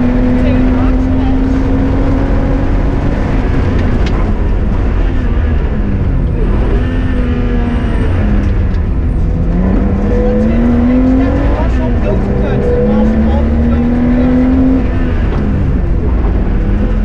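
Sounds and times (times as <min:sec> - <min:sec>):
car engine running hard: 0:00.0 - 0:17.0.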